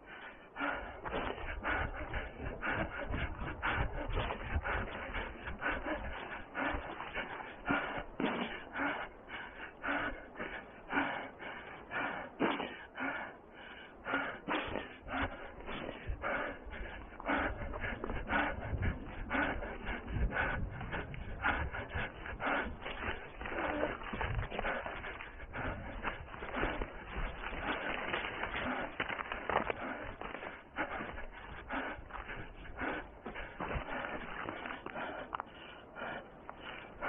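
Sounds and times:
running footsteps on forest floor: 0.0s - 37.0s
undergrowth brushing and rustling: 26.0s - 30.5s.

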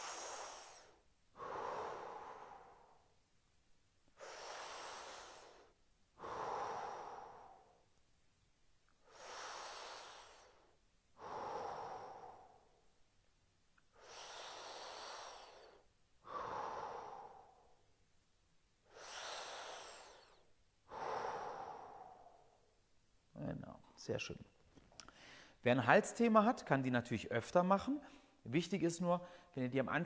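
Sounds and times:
man breathing slowly: 0.0s - 3.2s, 4.1s - 8.0s, 8.9s - 13.1s, 13.8s - 18.0s, 18.8s - 22.8s, 25.0s - 25.6s.

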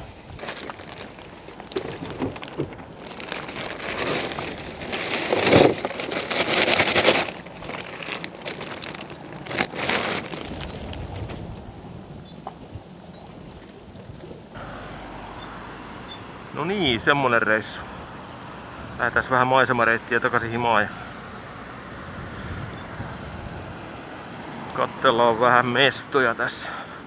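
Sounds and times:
handling noise rustling: 0.0s - 11.4s.

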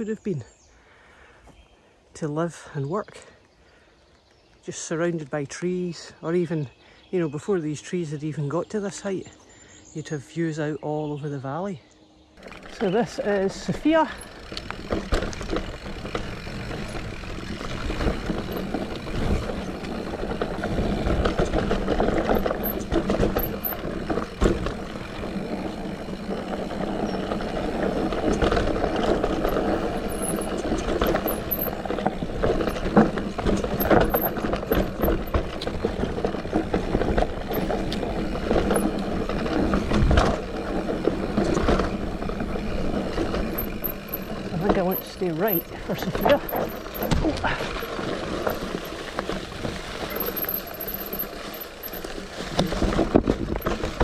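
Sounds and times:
bike tyres on dirt trail: 12.0s - 54.0s
bike knocking and rattling: 12.4s - 54.0s.

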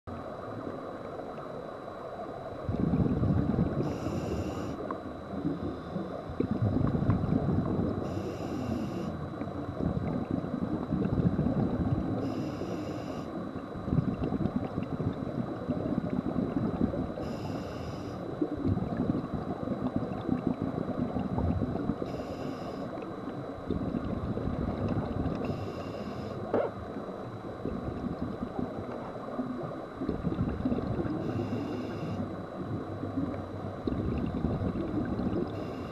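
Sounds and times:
exhaled air bubbling: 2.5s - 35.9s
regulator hissing inhale: 3.8s - 4.8s, 8.0s - 9.2s, 12.2s - 13.3s, 17.2s - 18.3s, 22.1s - 23.0s, 25.4s - 26.5s, 31.2s - 32.3s, 35.6s - 35.9s.

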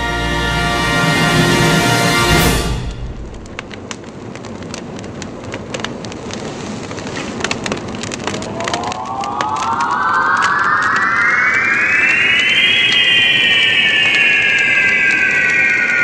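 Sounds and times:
fire crackling and hissing: 0.1s - 16.0s
rising pitched tone: 8.3s - 16.0s.

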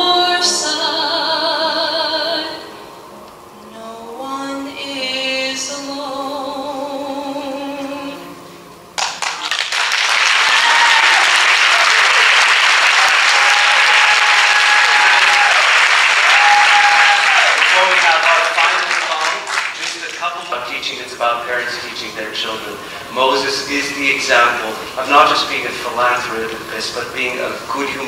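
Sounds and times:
woman singing with vibrato: 0.0s - 2.9s, 3.6s - 8.5s
piano: 0.0s - 28.0s
audience applause and cheers: 9.0s - 21.9s.

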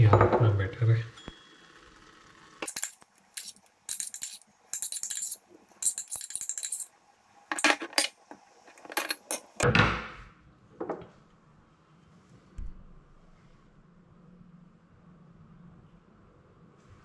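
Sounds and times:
light metallic clinks: 2.6s - 6.9s
metal spoon scraping a pot: 2.6s - 6.9s.

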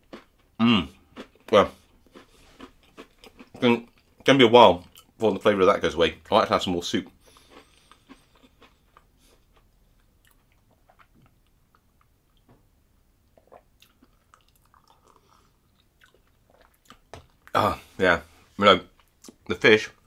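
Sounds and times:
person chewing: 0.0s - 5.2s, 7.0s - 12.5s, 13.3s - 18.0s
person sipping and swallowing: 13.3s - 18.0s.

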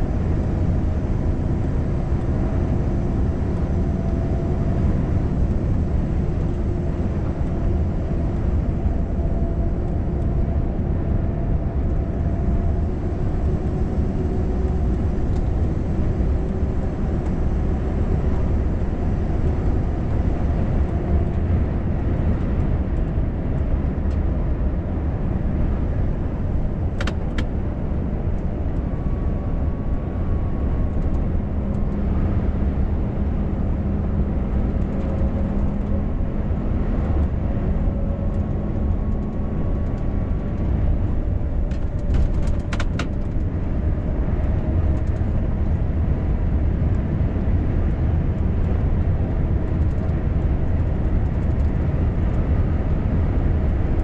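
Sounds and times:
truck engine drone: 0.0s - 54.0s
tyre and road noise: 0.0s - 54.0s
cab rattle clicks: 41.6s - 43.5s.

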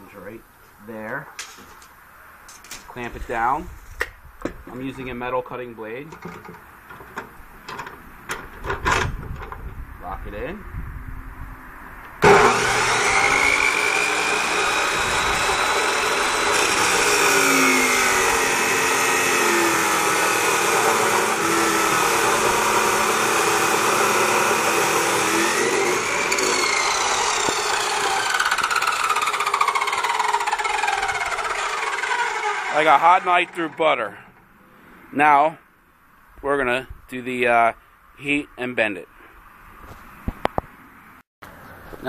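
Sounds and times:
chop saw cutting steel: 12.2s - 34.0s.

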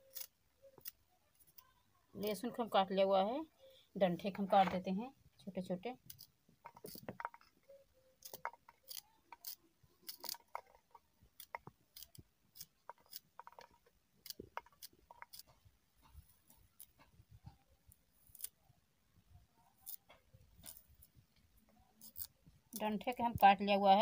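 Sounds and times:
knife cutting garlic stalks: 0.1s - 1.0s, 8.2s - 10.8s, 11.4s - 15.5s, 18.2s - 18.6s, 19.8s - 21.1s, 22.0s - 23.4s.

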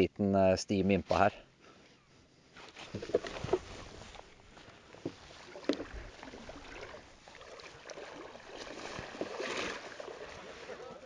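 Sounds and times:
sea water lapping: 2.6s - 11.0s
small splashes: 5.1s - 11.0s.

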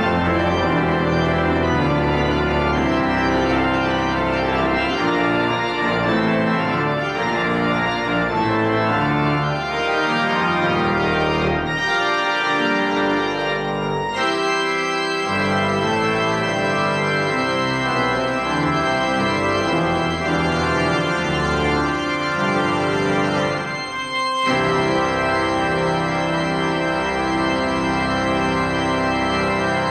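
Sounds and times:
pipe organ playing chords: 0.0s - 29.9s.

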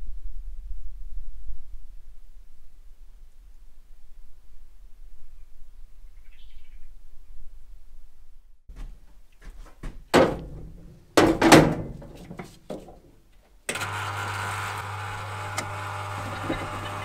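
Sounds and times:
electric pump humming: 13.7s - 17.0s.

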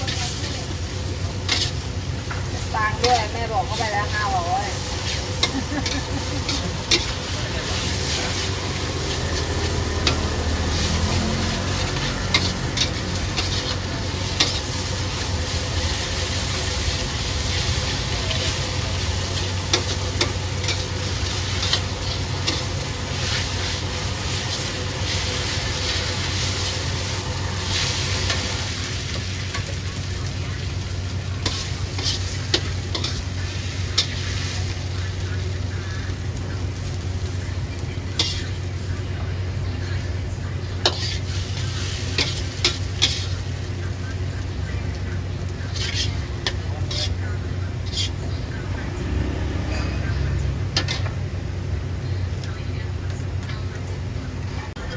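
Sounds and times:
metal spatula scraping a wok: 0.0s - 30.1s, 31.3s - 34.9s, 38.0s - 38.6s, 40.7s - 43.7s, 45.4s - 48.3s, 50.7s - 51.2s
food sizzling in a wok: 0.0s - 54.9s.

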